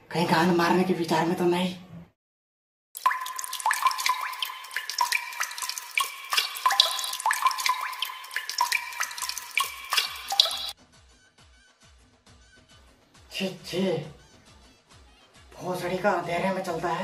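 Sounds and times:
water splashing and dripping: 3.0s - 10.8s.

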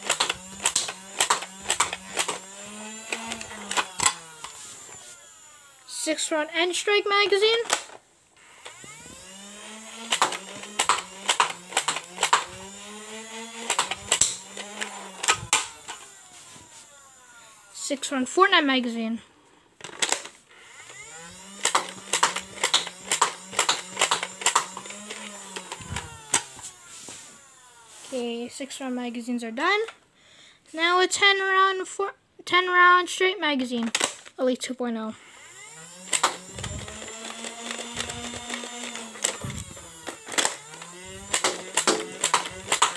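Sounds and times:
toy darts firing: 0.0s - 4.6s, 8.7s - 16.1s, 21.0s - 26.6s, 36.0s - 42.9s
flywheel blaster whining: 0.0s - 18.4s, 19.8s - 29.0s, 35.1s - 42.9s.

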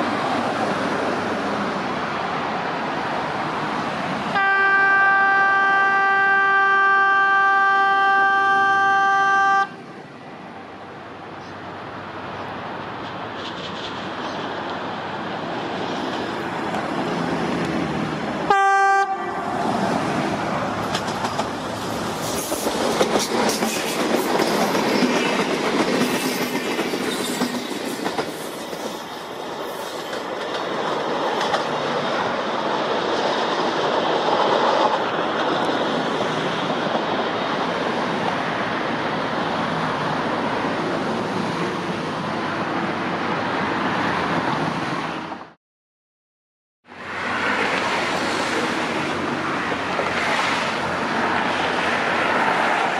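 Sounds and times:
wheels rumbling on rail: 0.0s - 45.6s, 46.9s - 52.9s
train horn blast: 4.3s - 9.8s, 18.5s - 19.7s
clatter over rail joints: 13.0s - 14.8s, 20.7s - 32.4s.

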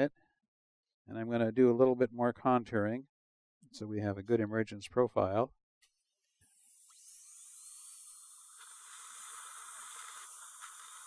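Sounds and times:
dental drill whine and hiss: 6.2s - 11.0s.

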